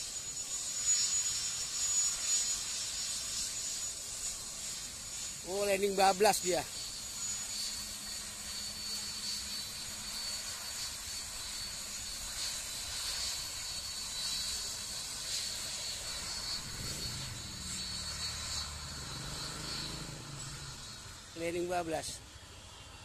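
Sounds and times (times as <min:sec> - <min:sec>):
jet engines whining: 0:00.0 - 0:23.0
low droning tone: 0:16.5 - 0:21.2.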